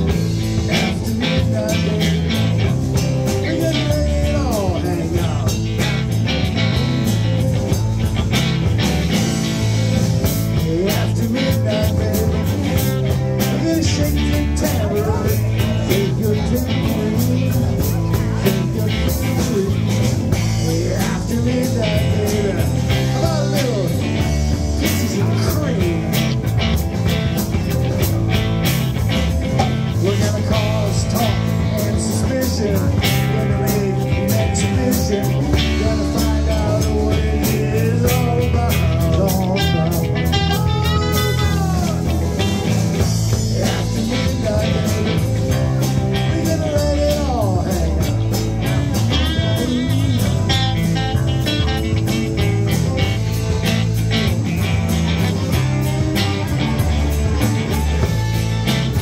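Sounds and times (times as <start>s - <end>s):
rock band playing: 0.0s - 59.0s
lead guitar solo: 35.6s - 43.9s, 48.0s - 59.0s.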